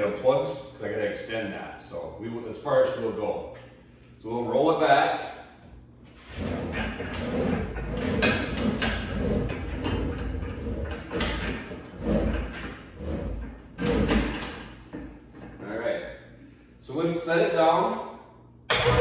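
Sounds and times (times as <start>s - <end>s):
trolley rolling rattle: 6.2s - 14.6s.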